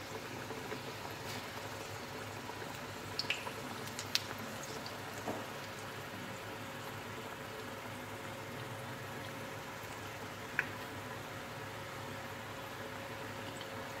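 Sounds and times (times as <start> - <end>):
sharp oil crackles: 0.0 - 8.0
dough sizzling in hot oil: 0.0 - 14.0.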